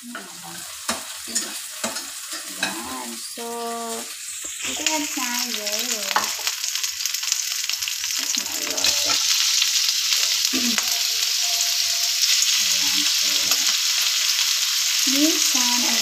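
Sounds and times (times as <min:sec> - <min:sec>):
chicken and onion sizzling in pan: 0:00.0 - 0:16.0
spatula stirring in pan: 0:00.1 - 0:03.1.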